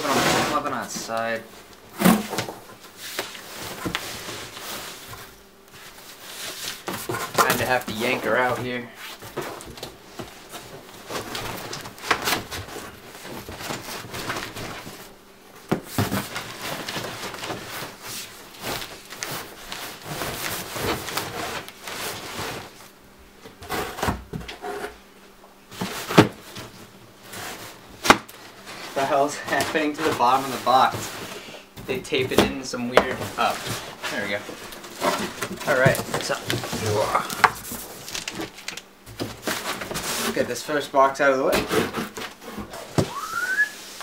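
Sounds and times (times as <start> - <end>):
cardboard boxes scraping: 0.0 - 15.1, 15.9 - 22.9, 23.6 - 25.0, 25.7 - 40.7, 41.4 - 44.0
cardboard rustling: 0.0 - 22.9, 25.7 - 40.8
box knocks and thumps: 34.9 - 37.8.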